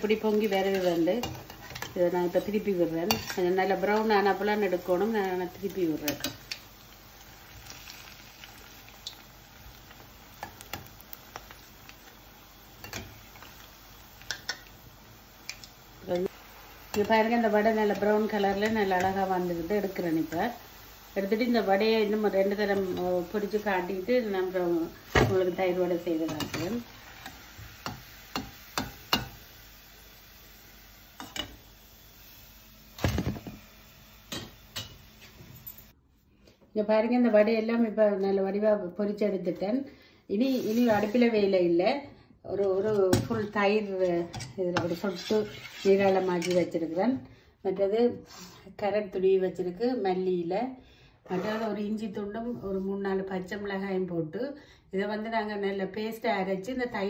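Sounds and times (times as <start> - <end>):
fritters sizzling in hot oil: 0.0 - 35.9, 40.4 - 41.6, 42.5 - 47.0, 48.3 - 48.7.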